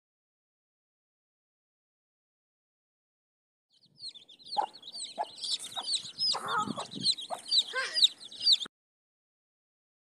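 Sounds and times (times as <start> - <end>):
chicks peeping: 3.7 - 8.7
hen clucking: 3.9 - 8.7.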